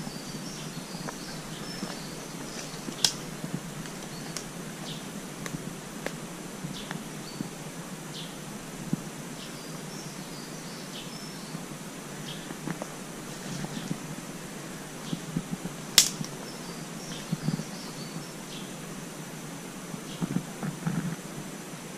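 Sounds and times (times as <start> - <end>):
bird chirping: 0.0 - 5.1, 9.4 - 14.1, 16.1 - 18.8
footsteps on pine needles: 1.0 - 4.5
twig cracking: 1.0 - 4.5, 15.9 - 16.4.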